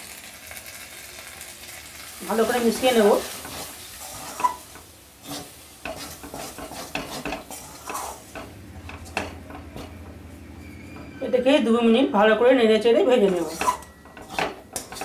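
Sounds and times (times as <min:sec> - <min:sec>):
faint sizzle: 0:00.0 - 0:15.0
metal spatula scraping pan: 0:02.4 - 0:11.7, 0:13.1 - 0:15.0
spatula clinking on pan: 0:13.3 - 0:15.0.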